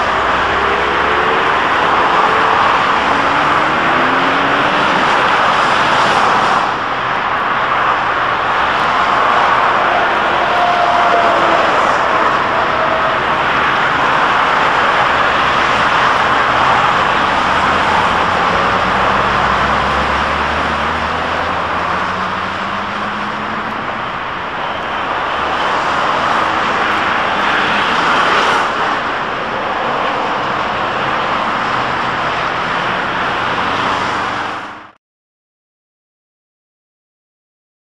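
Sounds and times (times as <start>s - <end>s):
trams passing: 0.0s - 34.8s
street traffic roar: 0.0s - 35.0s
vehicle engine pulling away: 12.4s - 23.9s.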